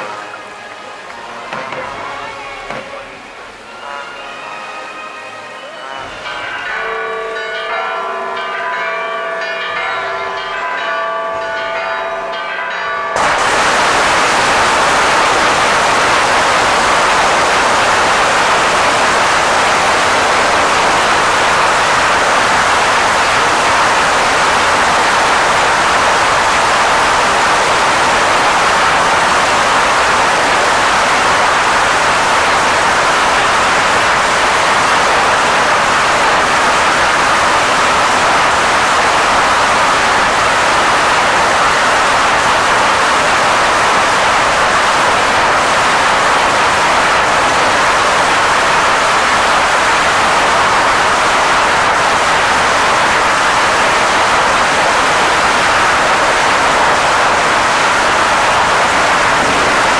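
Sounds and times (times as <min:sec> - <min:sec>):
loud continuous rushing noise: 0:00.0 - 0:06.9, 0:13.2 - 0:59.9
church bells ringing: 0:05.8 - 0:59.9.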